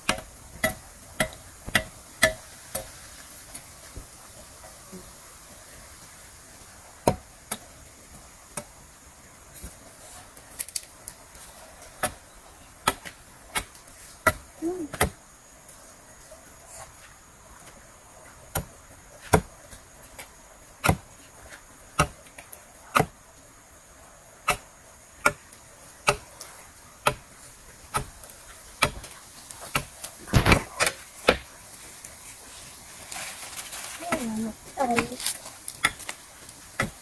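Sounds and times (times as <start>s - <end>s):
sharp chopping strikes: 22.9s - 23.2s, 26.1s - 26.3s, 27.9s - 28.1s.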